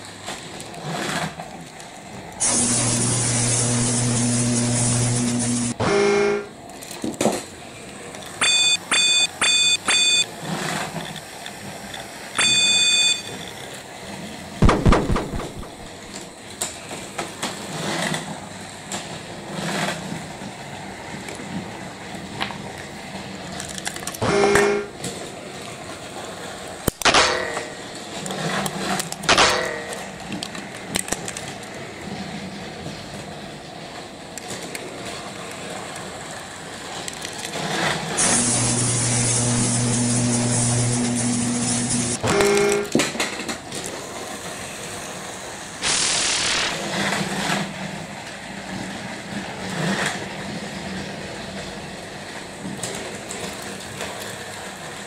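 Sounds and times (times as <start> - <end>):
electronic beeps: 8.4 - 10.3, 12.4 - 13.4.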